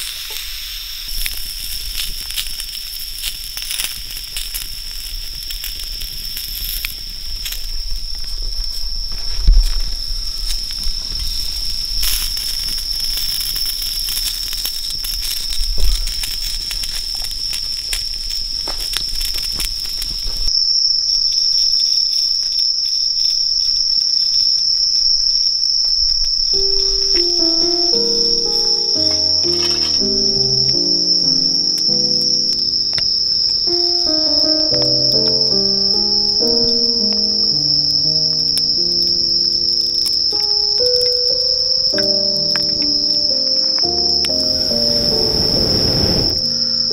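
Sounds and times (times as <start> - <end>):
campfire crackling: 0.0 - 20.6, 26.0 - 46.9
sausages sizzling on griddle: 0.0 - 20.7, 26.1 - 46.9
night insects trilling: 0.0 - 46.9
soft piano music: 26.5 - 46.9.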